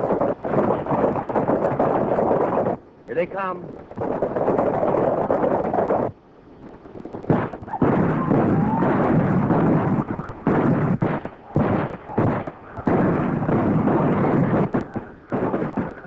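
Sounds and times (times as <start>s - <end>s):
sustained gunfire clatter: 7.0s - 16.0s.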